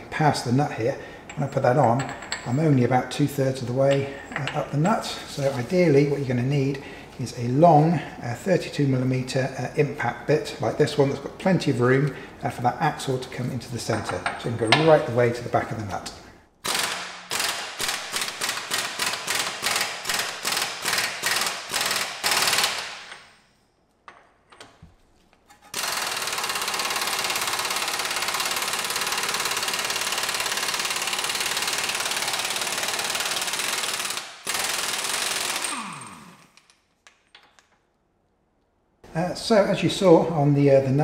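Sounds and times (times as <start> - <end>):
impact wrench: 16.6 - 23.4, 25.5 - 36.9.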